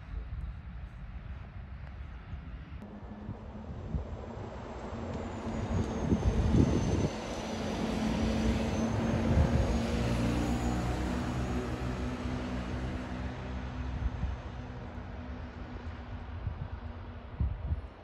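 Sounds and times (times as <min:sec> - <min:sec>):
distant bus pulling away: 0:02.8 - 0:16.3
bus engine driving past: 0:02.8 - 0:17.3.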